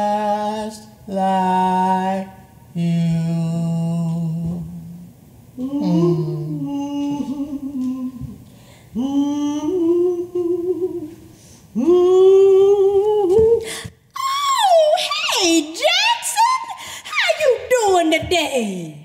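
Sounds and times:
low sung note: 5.6 - 7.3
woman humming a wordless tune: 5.6 - 13.7.

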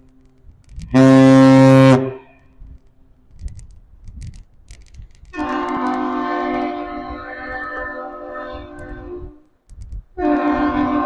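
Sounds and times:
deep ship's horn blast: 0.9 - 2.4, 5.4 - 9.4, 10.2 - 11.0
higher-pitched horn: 0.9 - 2.4, 5.4 - 9.4, 10.2 - 11.0.

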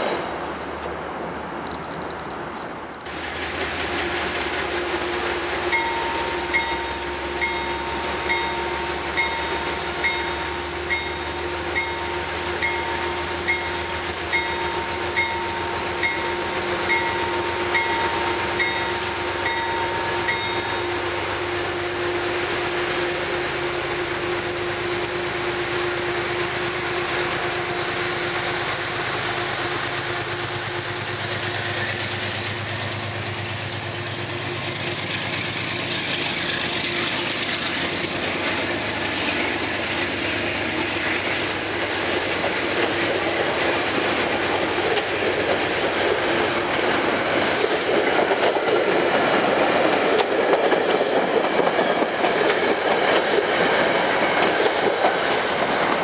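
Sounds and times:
diesel locomotive running: 0.0 - 56.0
train coaches rolling past: 0.0 - 56.0
locomotive bell ringing: 5.7 - 21.2.

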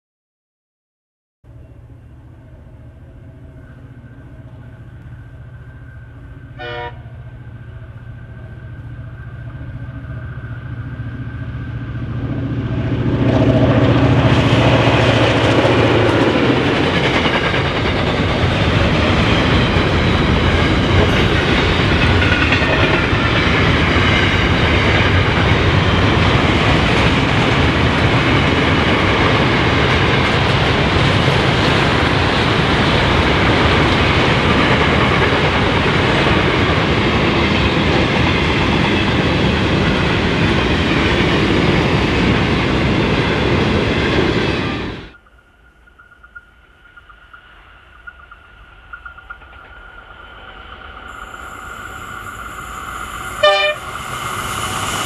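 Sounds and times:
locomotive engine drone: 1.5 - 55.0
train wheels on rails: 1.9 - 55.0
train horn toot: 6.5 - 7.4, 53.4 - 54.0.

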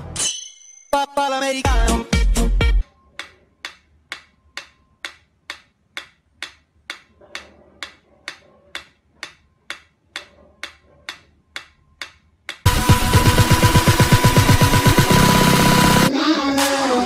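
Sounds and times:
metronome ticking: 3.1 - 14.9.

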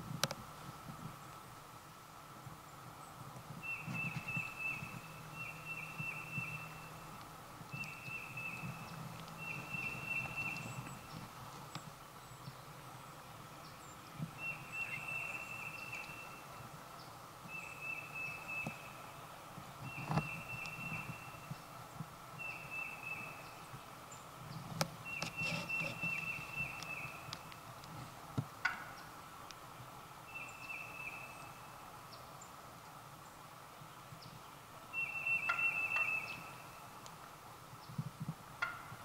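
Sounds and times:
songbird trilling: 3.6 - 7.1, 7.7 - 11.2, 13.6 - 16.5, 17.5 - 18.9, 19.9 - 21.5, 22.4 - 23.6, 25.0 - 27.3, 30.3 - 31.6, 35.0 - 36.6.

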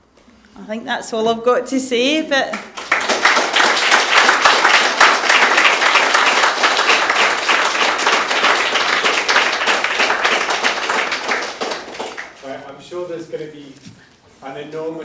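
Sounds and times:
audience applauding: 2.6 - 12.6.

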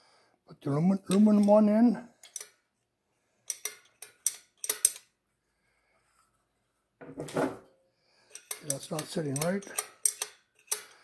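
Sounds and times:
metal push rod clicking: 3.5 - 5.1, 8.3 - 11.0.

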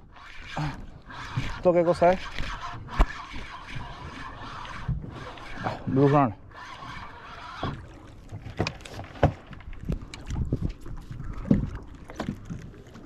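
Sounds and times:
wind rumble on microphone: 9.7 - 12.8.

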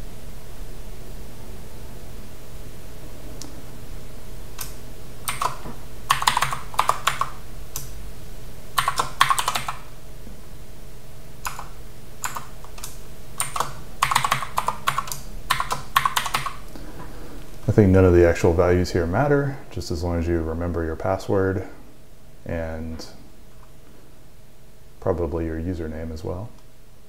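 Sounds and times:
low background hum: 0.0 - 27.0
computer keyboard typing: 4.6 - 7.9, 8.8 - 9.9, 11.4 - 16.6.

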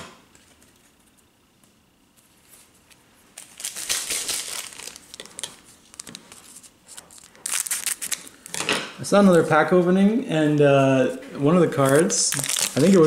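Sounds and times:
shiny wrapper crinkling: 3.3 - 8.5, 11.8 - 13.0
scissors cutting wrapper: 3.4 - 6.2, 6.9 - 8.3, 11.8 - 13.0.

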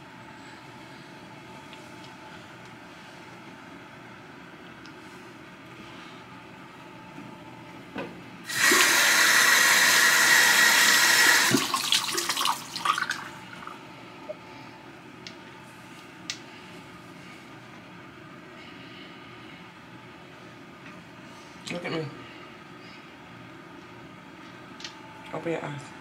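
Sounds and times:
sink tap running: 8.5 - 13.3.

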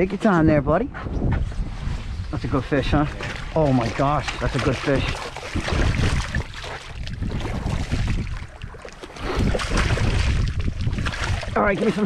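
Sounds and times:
wind rumbling on microphone: 0.0 - 12.0
fish splashing at the surface: 3.1 - 12.0.

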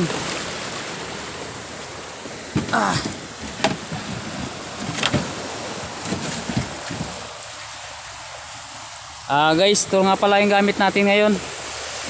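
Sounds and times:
water rushing along boat hull: 0.0 - 12.0
wind noise: 2.4 - 7.4
sharp knocks or splashes: 2.5 - 7.2.

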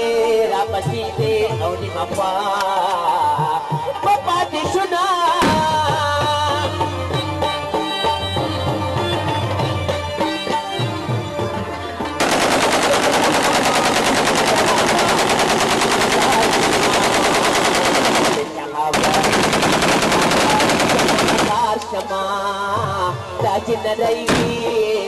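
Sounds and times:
folk music with drums: 0.0 - 25.0
rapid automatic gunfire: 12.2 - 21.8.

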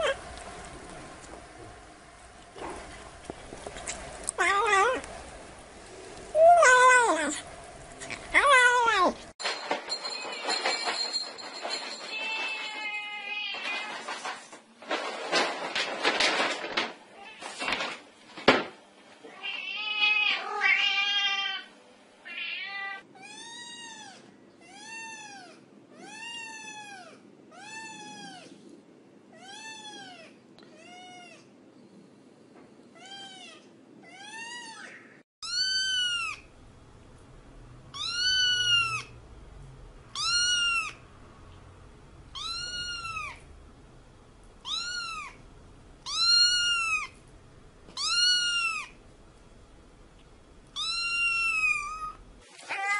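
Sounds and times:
cat meowing: 19.3 - 28.5, 33.0 - 36.5, 37.9 - 39.1, 40.2 - 41.0, 42.3 - 43.4, 44.6 - 45.4, 46.0 - 47.2, 48.0 - 49.0, 50.8 - 52.9.

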